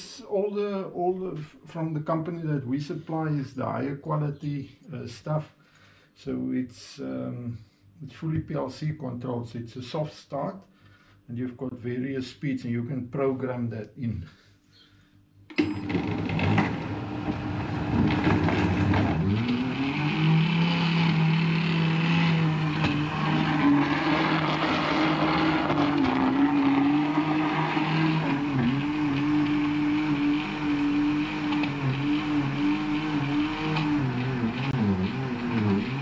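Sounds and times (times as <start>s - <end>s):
blender motor churning and whining: 15.6s - 36.0s.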